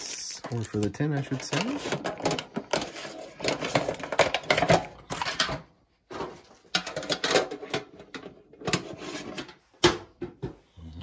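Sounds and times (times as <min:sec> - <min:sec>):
packaging crinkling and rustling: 0:00.0 - 0:05.5.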